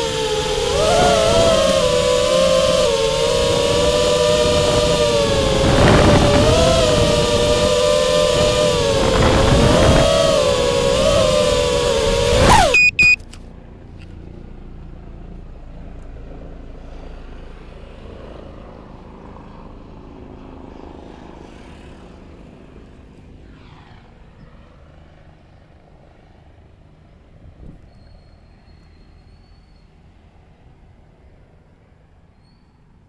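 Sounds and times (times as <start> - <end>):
drone motors whining: 0.0 - 13.2
short high beeps: 12.5 - 13.2.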